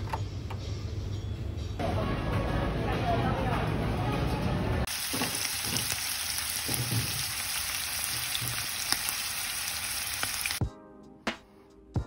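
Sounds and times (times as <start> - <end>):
food sizzling in a frying pan: 4.9 - 10.6.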